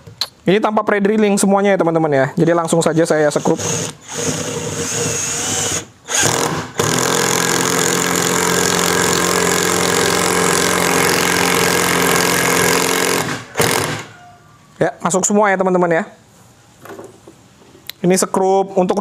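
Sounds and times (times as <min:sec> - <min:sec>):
impact driver hammering: 0:04.2 - 0:14.1.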